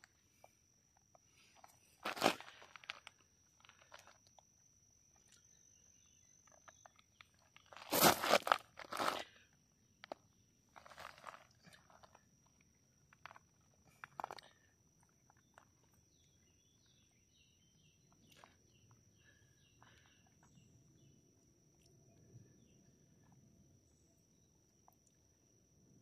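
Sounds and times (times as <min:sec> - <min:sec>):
footsteps crunching on gravel: 0:02.0 - 0:03.1, 0:07.6 - 0:09.3
distant bird singing: 0:14.5 - 0:24.6.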